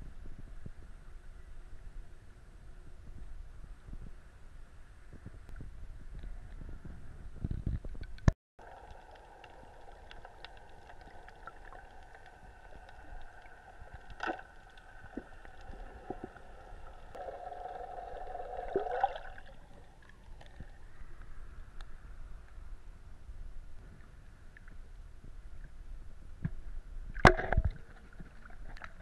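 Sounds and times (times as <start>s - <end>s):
sharp clicks underwater: 7.4s - 16.4s, 26.4s - 29.0s.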